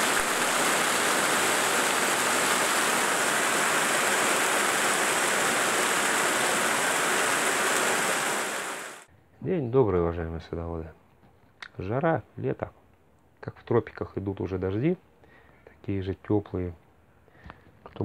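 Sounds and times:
heavy rain on leaves: 0.0 - 9.1.

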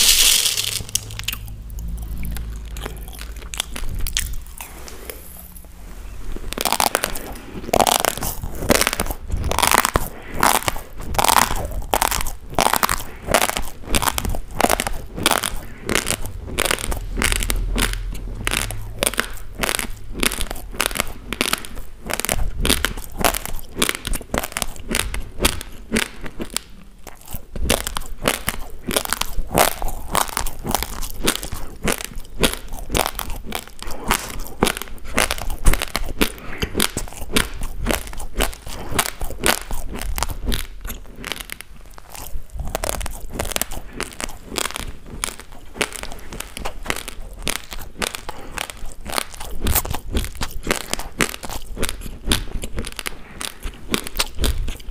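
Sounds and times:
raw rice being chewed: 0.0 - 54.9.

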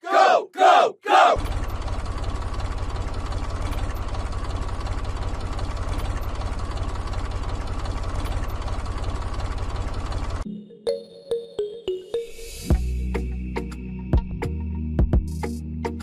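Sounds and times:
tractor engine idling: 1.4 - 10.4.

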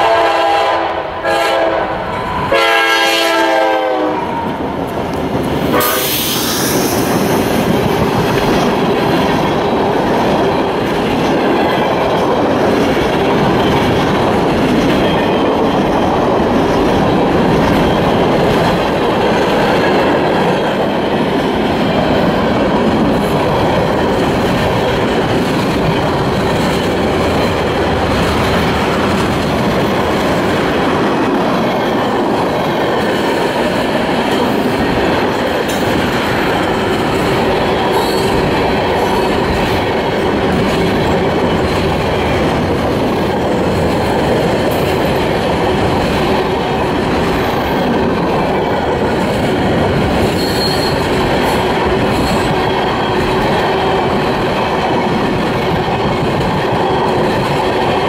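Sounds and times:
train wheels rumbling on rails: 0.0 - 58.0
wheel squeals: 50.3 - 51.1.

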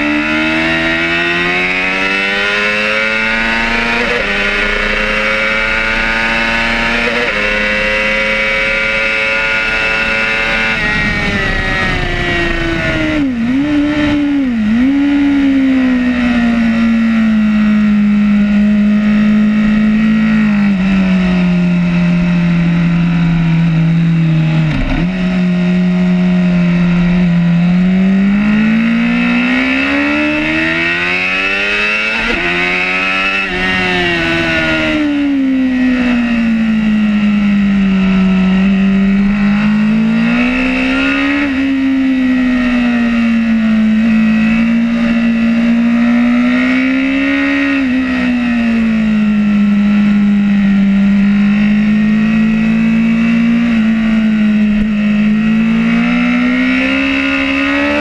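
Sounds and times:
motorbike engine revving: 0.0 - 58.0
wind rushing: 10.4 - 15.0.

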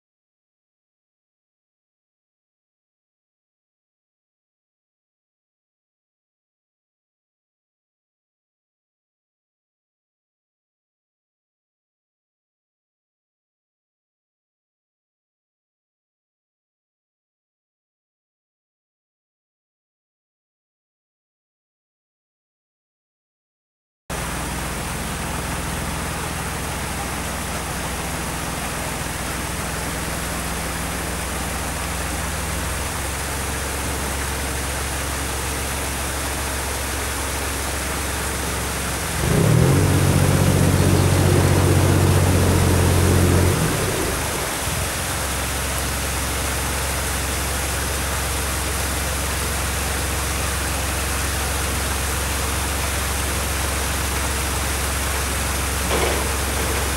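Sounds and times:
boat diesel engine running: 24.1 - 56.9.

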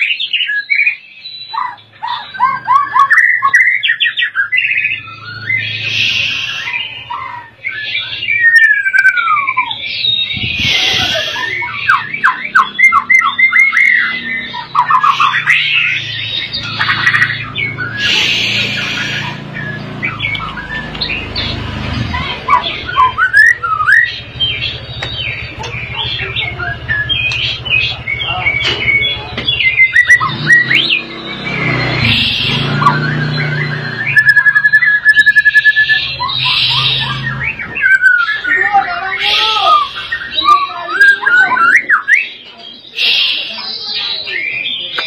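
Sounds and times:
bird singing trills: 0.0 - 45.0
bird harsh rasping: 5.7 - 7.2, 10.3 - 11.9, 14.4 - 22.8, 31.7 - 33.3, 35.8 - 38.4, 39.0 - 40.7, 42.9 - 44.1.

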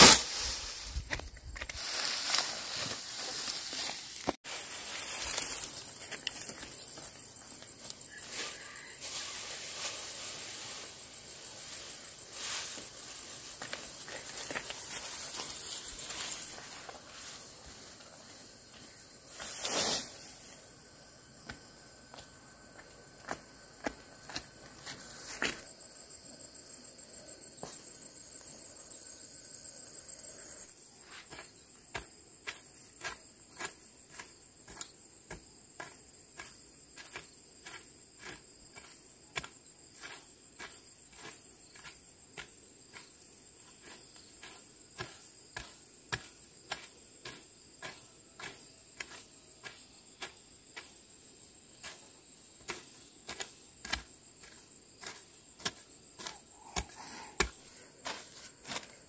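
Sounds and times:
hoe chopping into dry soil: 0.0 - 4.4, 31.2 - 43.2, 43.8 - 51.1, 51.7 - 59.0
insects chirring: 0.0 - 59.0.

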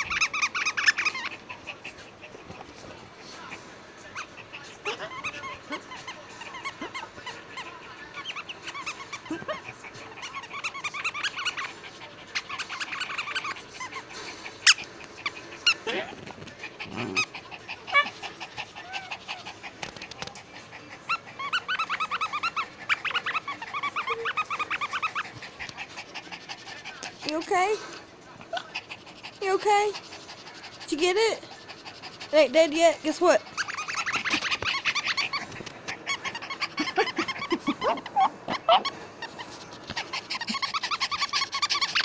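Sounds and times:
squeaky toy squeaking: 0.0 - 1.4, 4.1 - 7.2, 8.1 - 14.9, 21.1 - 25.3, 32.3 - 35.4, 36.0 - 42.0.

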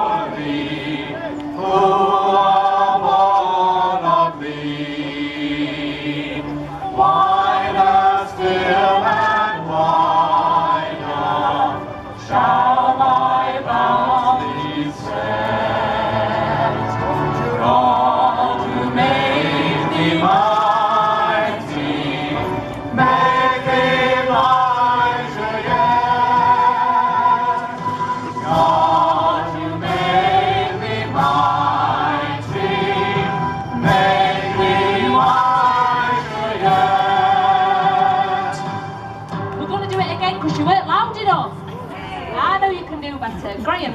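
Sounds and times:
group singing through pa: 0.0 - 39.2.

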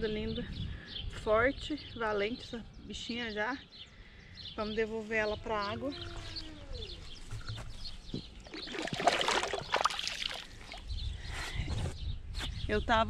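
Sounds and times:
fish splashing at water's edge: 8.4 - 10.9
hands swishing in water: 8.4 - 10.9.

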